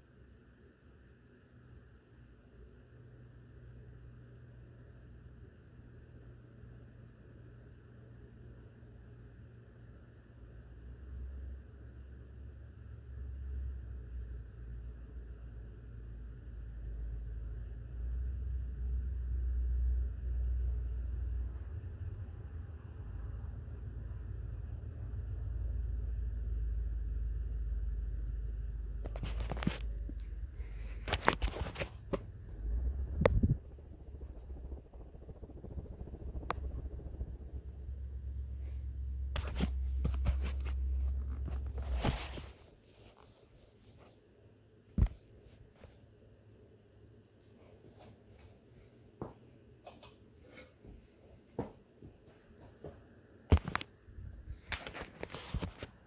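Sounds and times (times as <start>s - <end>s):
ceiling fan rumbling: 0.0s - 56.0s
phone handling clicks and rustling: 30.9s - 32.2s, 53.5s - 54.0s.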